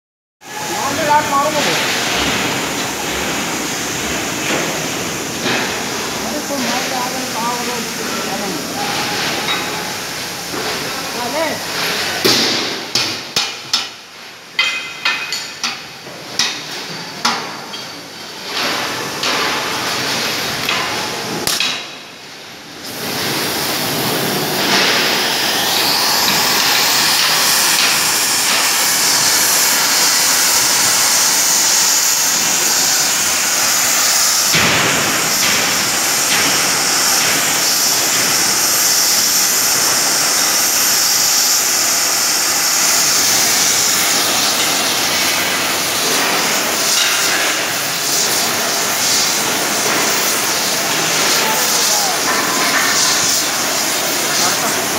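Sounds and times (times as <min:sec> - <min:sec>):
hammer blows ringing on steel: 0:14.6 - 0:15.8
gas cutting torch hissing: 0:22.7 - 0:54.9.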